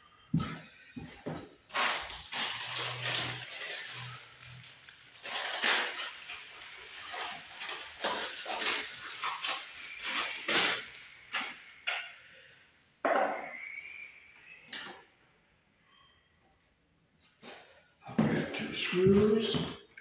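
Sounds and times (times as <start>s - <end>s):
plastic bag crinkling: 1.7s - 11.9s.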